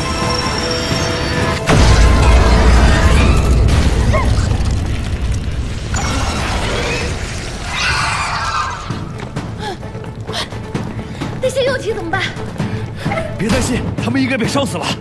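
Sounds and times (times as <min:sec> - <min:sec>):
film music score: 0:00.0 - 0:15.0
explosion boom and rumble: 0:01.7 - 0:07.7.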